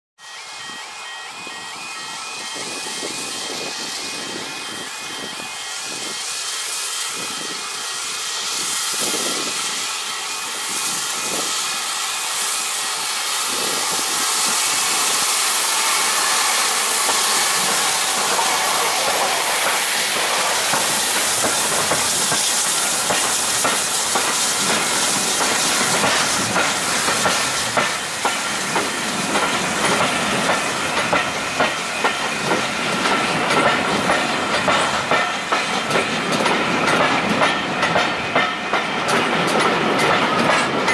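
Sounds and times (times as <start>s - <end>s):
steam locomotive hissing: 0.2s - 40.9s
train wheels clacking over rail joints: 5.9s - 40.9s.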